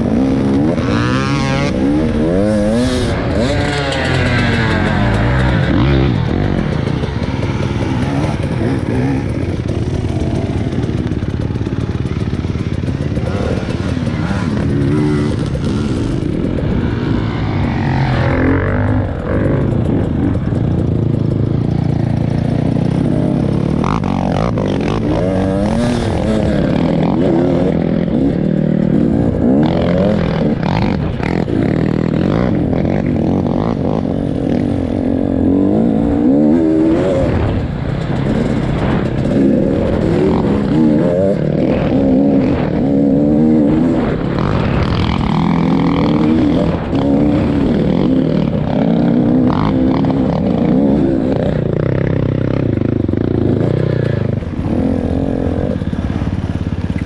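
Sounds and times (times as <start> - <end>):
vehicle engine running: 0.0 - 35.4, 37.2 - 42.7.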